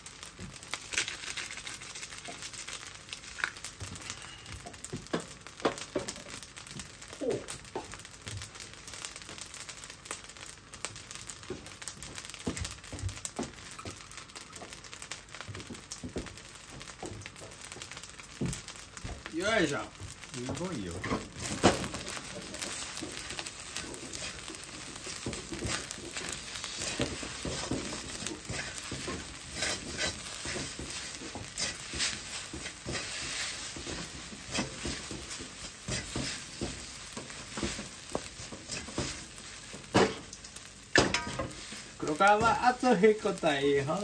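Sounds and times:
rice sizzling in a wok: 0.0s - 44.0s
spatula scraping a wok: 21.0s - 42.6s.

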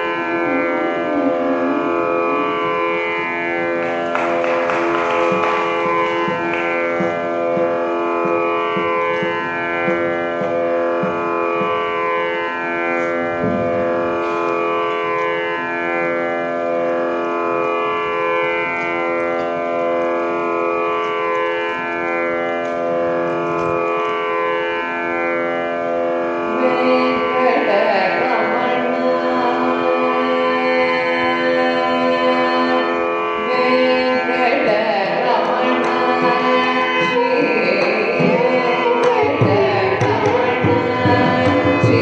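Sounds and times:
steady drone: 0.0s - 16.5s
plucked string notes: 0.4s - 12.4s.

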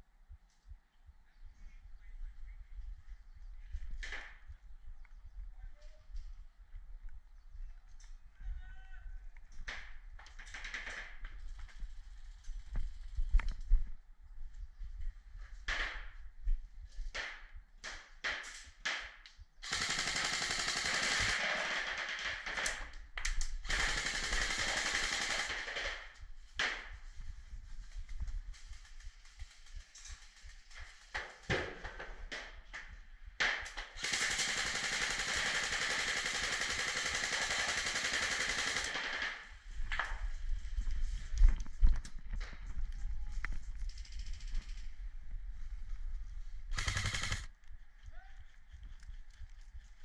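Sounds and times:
airsoft gun firing full auto: 19.6s - 22.9s, 23.6s - 26.1s, 34.0s - 39.5s, 46.7s - 47.5s.

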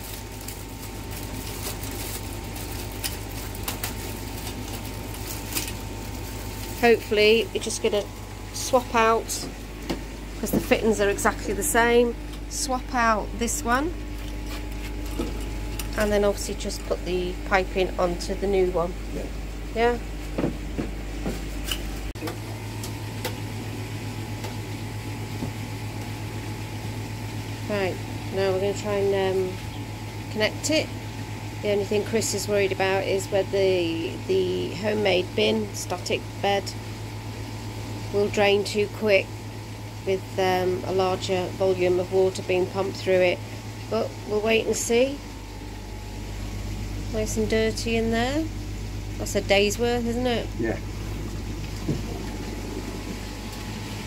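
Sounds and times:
plastic bag crinkling: 0.0s - 7.7s
low mechanical hum: 0.0s - 54.0s
thin steady whine: 0.0s - 54.0s.

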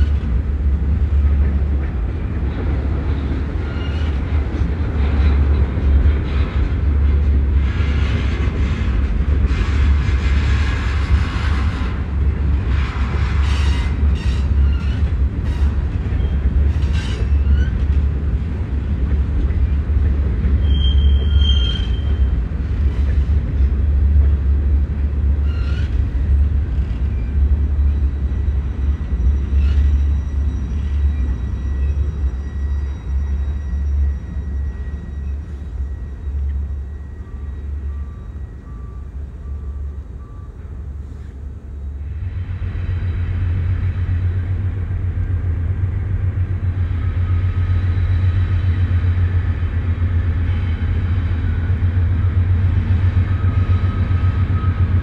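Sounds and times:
freight train rumbling past: 0.0s - 55.0s
high squeal: 20.6s - 22.3s, 27.2s - 38.9s.

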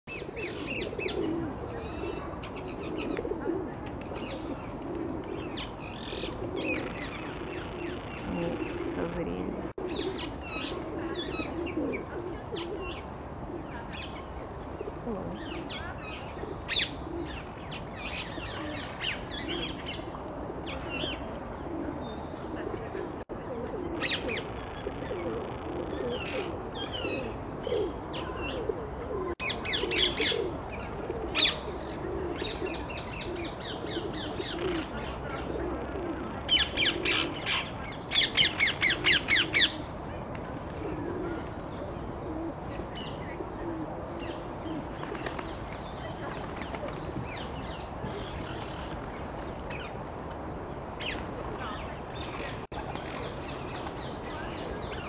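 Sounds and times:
pigeons cooing: 0.1s - 55.0s.

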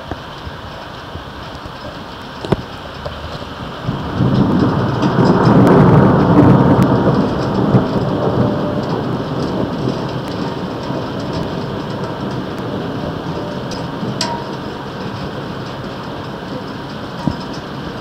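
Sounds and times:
low rolling thunder: 0.0s - 18.0s
steady rain: 0.0s - 18.0s
light ticks: 13.7s - 17.8s.

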